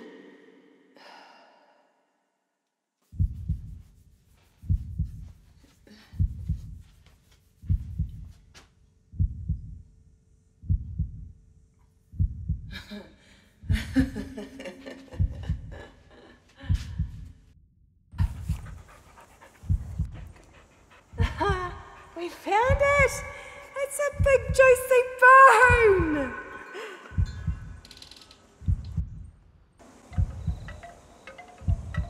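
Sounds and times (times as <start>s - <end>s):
heartbeat thuds: 3.1s - 3.9s, 4.6s - 5.5s, 6.1s - 7.0s, 7.6s - 9.9s, 10.6s - 11.4s, 12.1s - 12.8s, 13.6s - 14.3s, 15.1s - 16.0s, 16.6s - 17.5s, 18.2s - 25.0s, 25.6s - 26.4s, 27.1s - 27.9s, 28.6s - 29.4s, 30.1s - 30.9s, 31.6s - 32.0s.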